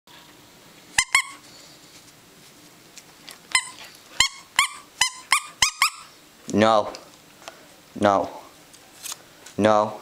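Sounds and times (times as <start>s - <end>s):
squeaky toy squeaks: 1.0s - 1.4s, 3.5s - 6.1s.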